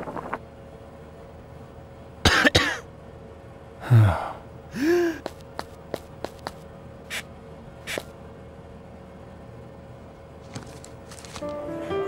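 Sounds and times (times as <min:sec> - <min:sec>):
person coughing: 0:02.3 - 0:02.9, 0:03.8 - 0:05.3
throat-clearing grunt: 0:03.8 - 0:05.2.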